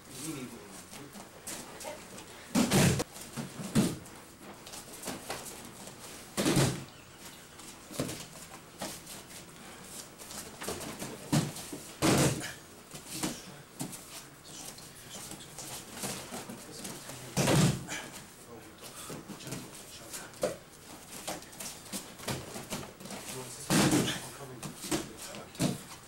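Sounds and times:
shuffling on mats: 0:00.1 - 0:26.0
bodies thudding onto padded mats: 0:01.8 - 0:04.1, 0:06.3 - 0:06.9, 0:10.3 - 0:13.4, 0:15.9 - 0:18.2, 0:20.5 - 0:25.9.

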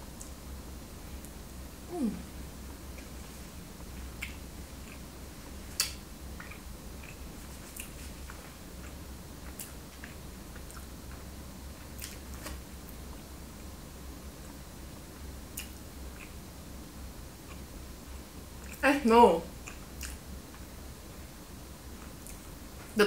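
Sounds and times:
steady low hum: 0:00.0 - 0:23.0
person chewing food: 0:04.0 - 0:11.0, 0:11.8 - 0:12.6, 0:15.5 - 0:16.4, 0:17.4 - 0:17.7, 0:19.6 - 0:20.7.

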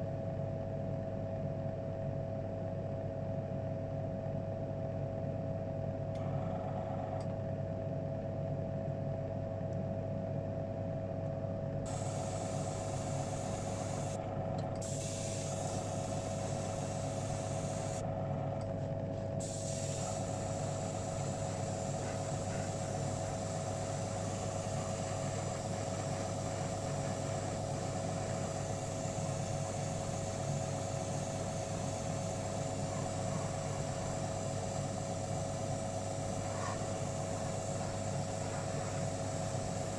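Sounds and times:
airbrush hissing: 0:11.9 - 0:14.2, 0:14.8 - 0:18.0, 0:19.4 - 0:39.9
electric motor hum: 0:11.9 - 0:18.2, 0:19.4 - 0:39.9.

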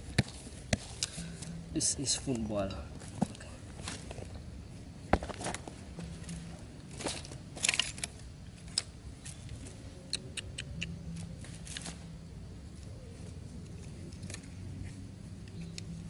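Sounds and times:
rustling of bamboo and wicker: 0:00.0 - 0:10.1, 0:11.1 - 0:16.0.

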